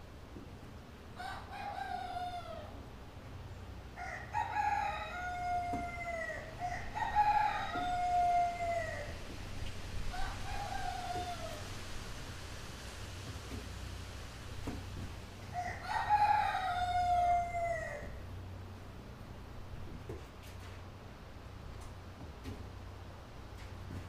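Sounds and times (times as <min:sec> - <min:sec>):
rooster crowing: 0:01.2 - 0:02.8, 0:04.0 - 0:09.2, 0:10.0 - 0:11.8, 0:15.4 - 0:18.2.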